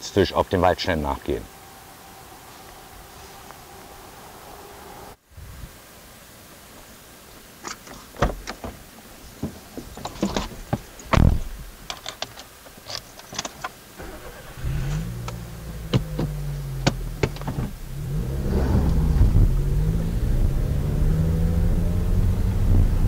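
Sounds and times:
car engine starting and running: 0:00.8 - 0:05.2, 0:13.9 - 0:23.0
car door clicks and knocks: 0:08.2 - 0:08.8, 0:15.9 - 0:17.8
car door slamming: 0:15.8 - 0:17.8.

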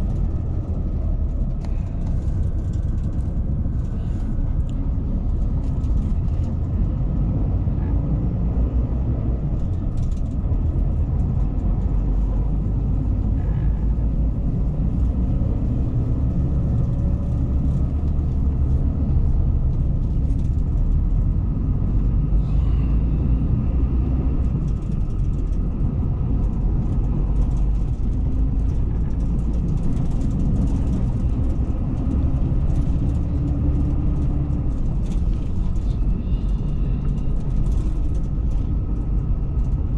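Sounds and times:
faint light rattles: 0:00.0 - 0:06.9, 0:22.7 - 0:39.9
coach engine and road rumble: 0:00.0 - 0:39.9.

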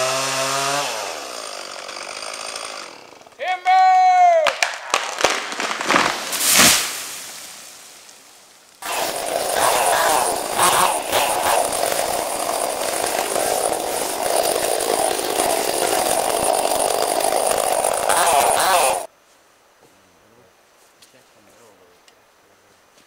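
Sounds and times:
chainsaw cutting wood: 0:00.0 - 0:03.4, 0:04.5 - 0:08.0, 0:08.8 - 0:19.1.

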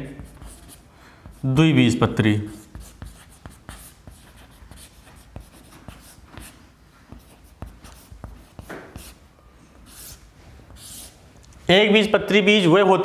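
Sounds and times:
chalk scratching on chalkboard: 0:00.1 - 0:01.6, 0:02.5 - 0:11.2.

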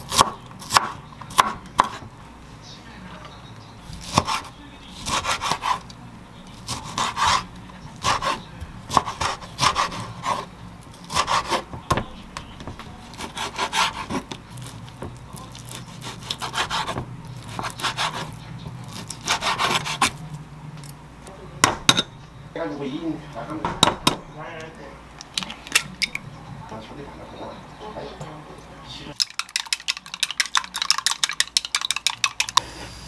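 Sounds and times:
knife slicing food: 0:03.9 - 0:12.2, 0:13.0 - 0:20.2.

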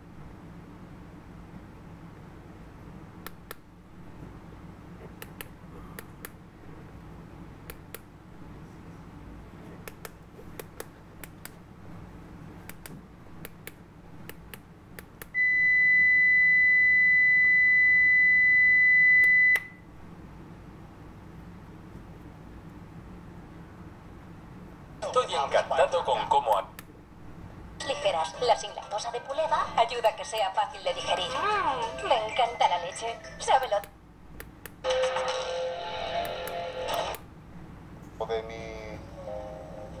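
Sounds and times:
loud steady meter beep: 0:15.3 - 0:19.8.

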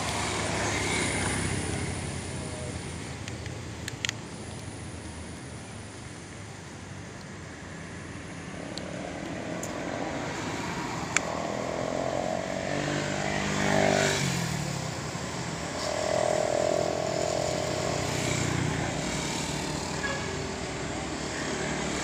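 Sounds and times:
motor vehicles passing: 0:00.0 - 0:22.0.

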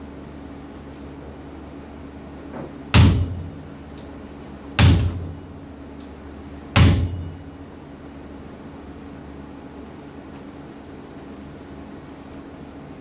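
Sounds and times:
steady low hum: 0:00.0 - 0:13.0
heavy knocks: 0:02.6 - 0:03.7, 0:04.8 - 0:05.5, 0:06.8 - 0:07.5.

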